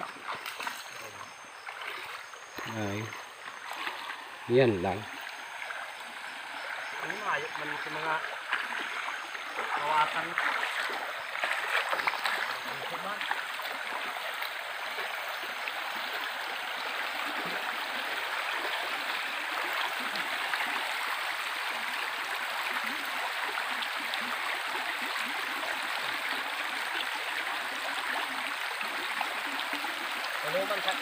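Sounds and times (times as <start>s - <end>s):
stream rushing over stones: 0.0s - 31.0s.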